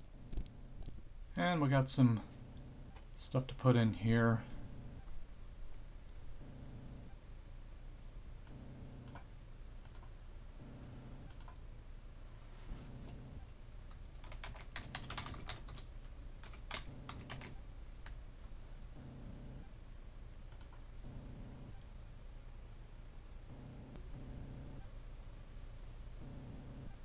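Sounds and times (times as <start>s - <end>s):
typing on computer keyboard: 13.9s - 18.2s.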